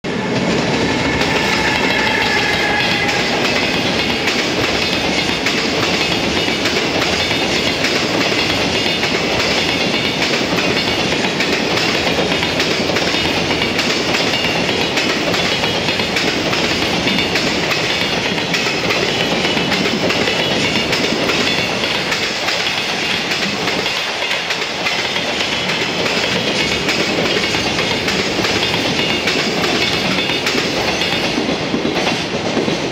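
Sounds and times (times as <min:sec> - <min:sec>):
train wheels clattering on rails: 0:00.1 - 0:32.9.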